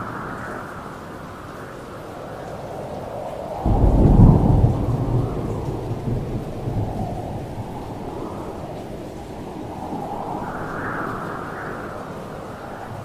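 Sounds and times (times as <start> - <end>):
steady rain: 0.0 - 13.0
thunder rumbling: 3.6 - 13.0.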